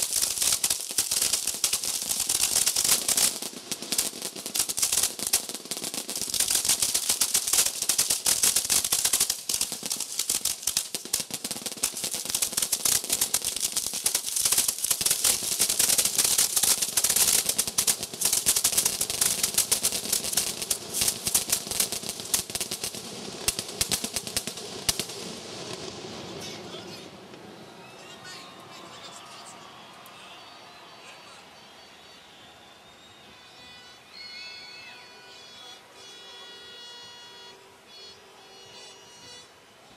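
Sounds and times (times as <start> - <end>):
fireworks crackling and launching: 0.0 - 31.4.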